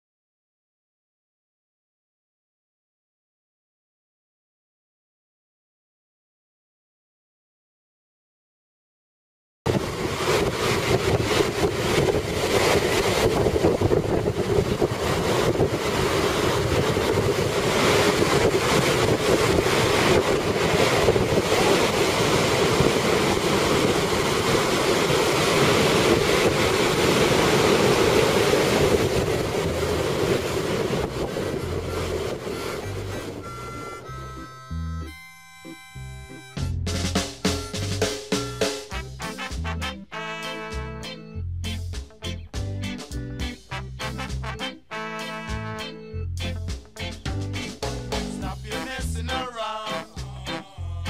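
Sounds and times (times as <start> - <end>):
heavy surf waves breaking: 9.7 - 34.5, 47.6 - 51.0
wind buffeting microphone: 9.7 - 34.5.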